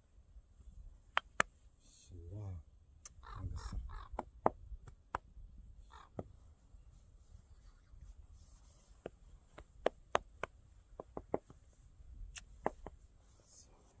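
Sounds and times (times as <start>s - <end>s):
sharp clicks and taps: 9.0s - 11.6s, 12.3s - 13.0s.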